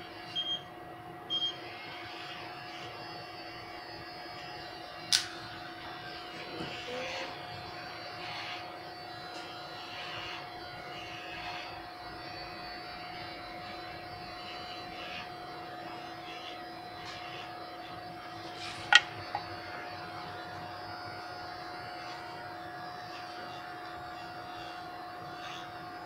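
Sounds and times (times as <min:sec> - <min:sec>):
electric hair clipper humming: 0:00.0 - 0:00.4, 0:01.3 - 0:26.0.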